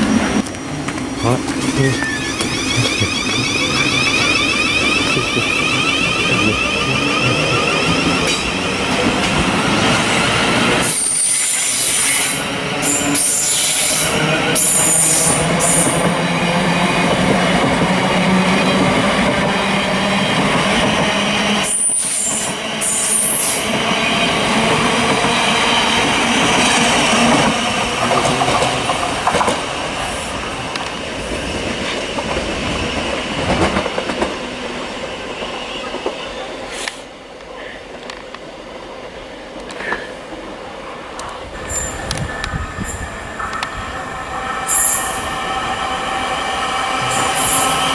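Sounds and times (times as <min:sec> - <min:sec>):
train wheels rumbling on rail: 0:00.0 - 0:47.9
high-pitched wheel squeals: 0:02.0 - 0:08.5.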